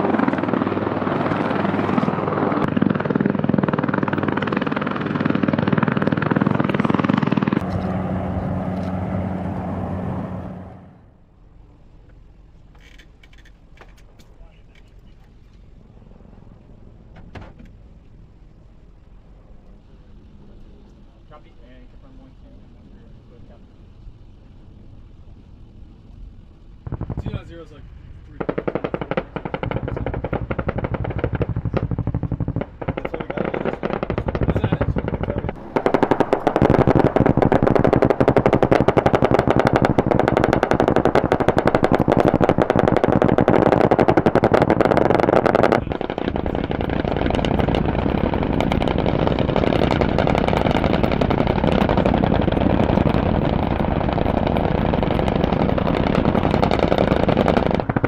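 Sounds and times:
rapid automatic gunfire: 26.8 - 27.5, 28.3 - 58.0.

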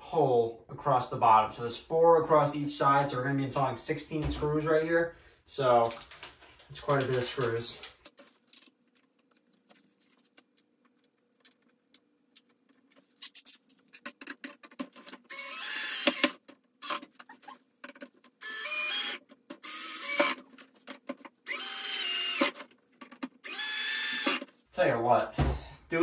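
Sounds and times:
cordless drill driving screws: 15.3 - 17.0, 18.4 - 20.4, 21.4 - 22.6, 23.4 - 24.5.

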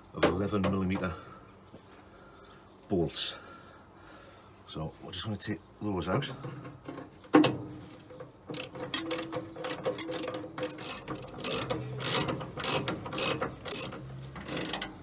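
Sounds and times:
ratchet spanner clicking: 7.8 - 15.0.

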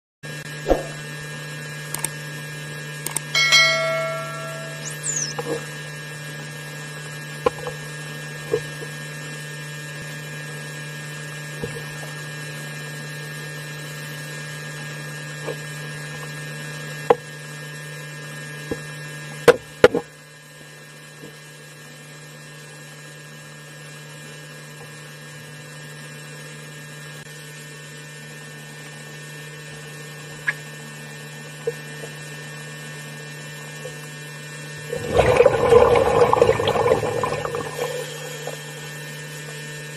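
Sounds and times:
steady low hum: 0.6 - 1.2
churning water rushing: 34.9 - 38.7.

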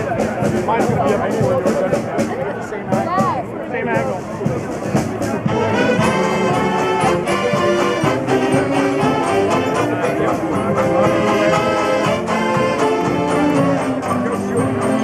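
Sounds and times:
strummed banjos: 0.0 - 15.0
saxophones playing tune: 5.4 - 15.0.

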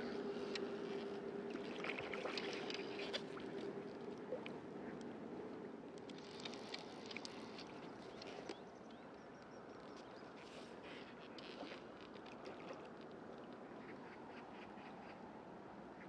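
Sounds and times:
water lapping and splashing: 0.2 - 5.4, 6.0 - 8.6, 10.3 - 15.1.

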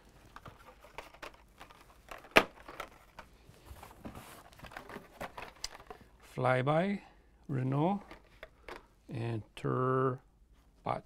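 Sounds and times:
rustling of blister card packaging: 0.0 - 6.1.

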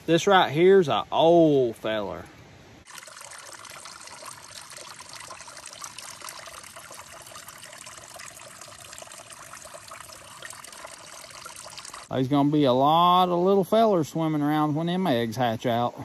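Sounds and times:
water trickling: 2.8 - 14.3.

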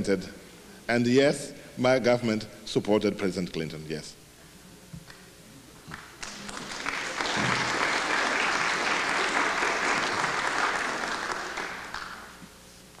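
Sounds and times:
audience applause: 5.9 - 12.4.

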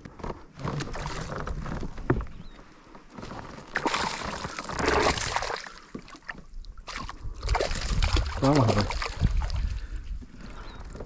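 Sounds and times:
water splashing: 3.5 - 10.0.

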